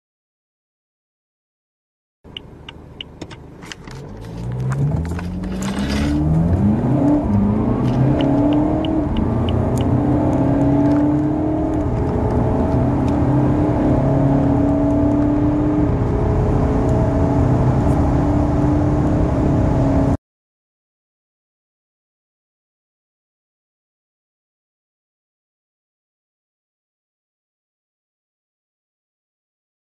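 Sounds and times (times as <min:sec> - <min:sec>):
diesel car engine accelerating: 0:02.3 - 0:20.2.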